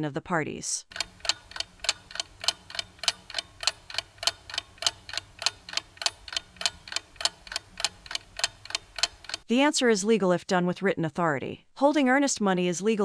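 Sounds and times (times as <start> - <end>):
clock ticking: 0.8 - 9.5.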